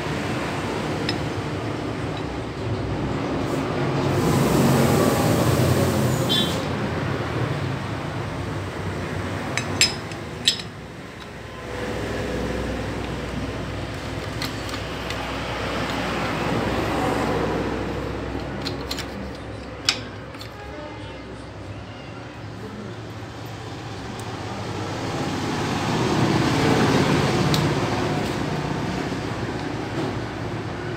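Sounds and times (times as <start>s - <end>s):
metal clinks: 9.5s - 11.3s.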